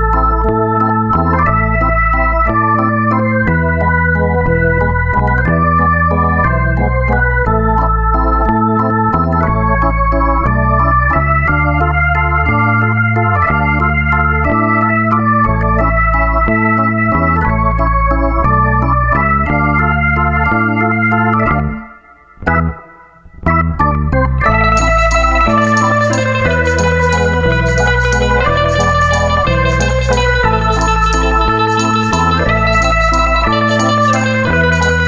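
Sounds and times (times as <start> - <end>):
deep bass: 0.0 - 35.0
slow organ-like chords: 0.0 - 35.0.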